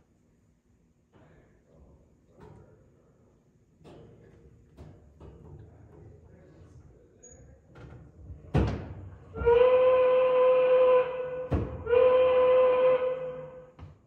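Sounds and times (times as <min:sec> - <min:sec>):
steamboat whistle blasts: 0:09.4 - 0:13.8.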